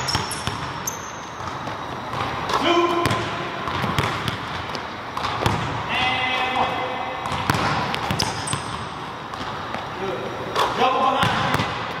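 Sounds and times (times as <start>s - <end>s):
basketball bouncing on wooden floor: 0.0s - 5.8s, 7.2s - 9.8s, 11.2s - 11.9s.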